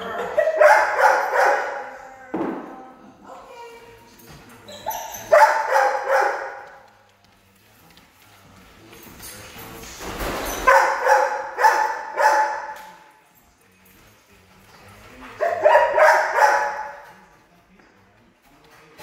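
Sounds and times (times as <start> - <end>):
dog barking: 0.1 - 2.0, 4.9 - 6.7, 10.6 - 13.0, 15.4 - 17.1.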